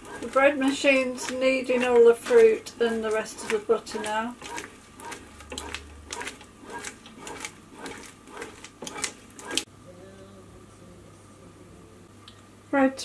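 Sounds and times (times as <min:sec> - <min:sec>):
bread maker kneading knocks: 0:00.0 - 0:09.6
faint steady hum: 0:09.2 - 0:13.0.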